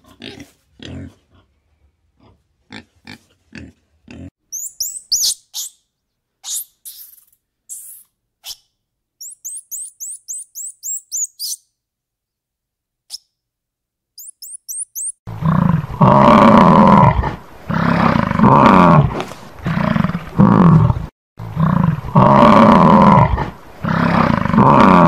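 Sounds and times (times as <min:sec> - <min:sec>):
high bird chirps: 0:04.5 - 0:05.8, 0:09.2 - 0:11.7, 0:14.2 - 0:15.2
bison bellowing: 0:15.3 - 0:25.0.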